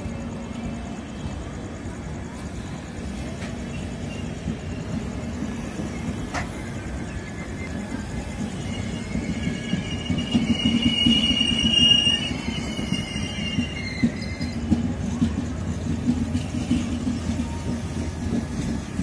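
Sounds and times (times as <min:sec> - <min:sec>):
train wheels rumbling on rails: 0:00.0 - 0:19.0
high-pitched wheel squeal: 0:05.9 - 0:14.8.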